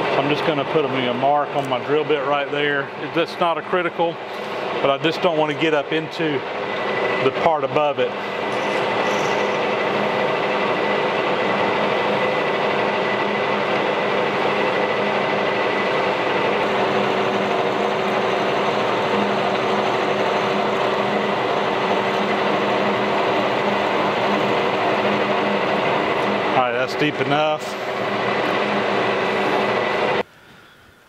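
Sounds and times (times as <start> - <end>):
metal lathe humming and whining: 0.0 - 30.3
drill boring into metal: 6.4 - 30.2.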